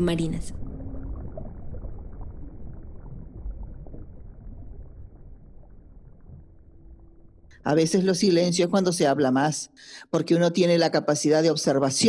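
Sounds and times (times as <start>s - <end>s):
muffled underwater water noise: 0.0s - 7.6s.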